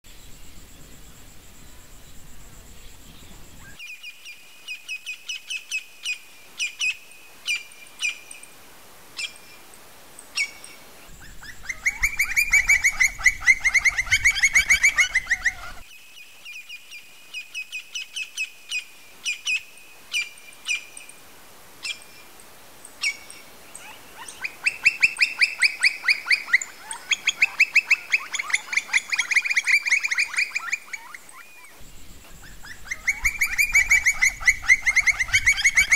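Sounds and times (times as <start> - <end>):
bird calling: 10.3 - 15.9, 23.0 - 35.9.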